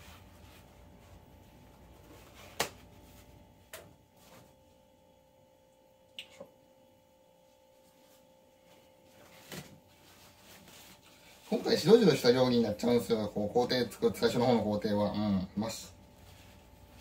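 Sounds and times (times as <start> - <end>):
faint steady hum: 0.0 - 17.0
paper rustling: 8.0 - 12.2.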